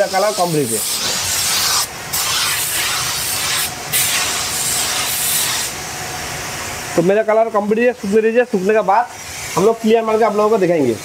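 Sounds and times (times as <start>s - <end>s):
paint spray gun hissing: 0.0s - 5.8s.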